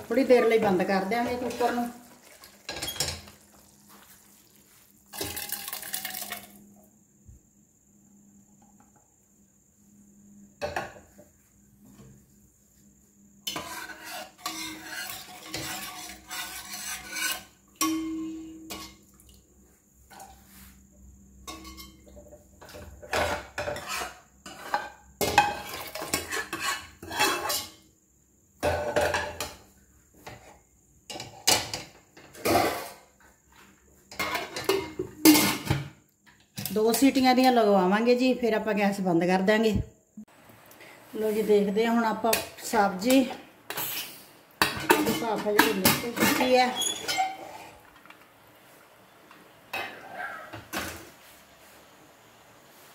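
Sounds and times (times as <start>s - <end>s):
metal spoon scraping a pan: 0.2s - 2.0s, 13.4s - 19.0s, 21.5s - 22.2s, 23.1s - 27.8s, 42.3s - 47.9s.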